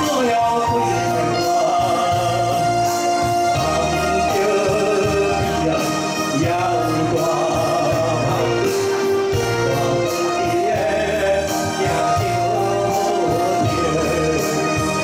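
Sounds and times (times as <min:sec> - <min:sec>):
amplified backing music: 0:00.0 - 0:15.0
man singing into microphone: 0:00.0 - 0:15.0.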